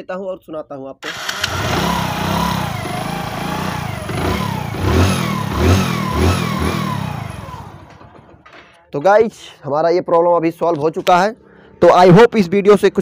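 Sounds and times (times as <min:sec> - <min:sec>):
motorcycle engine running: 0:01.1 - 0:08.5
motorcycle throttle blips: 0:01.3 - 0:08.1.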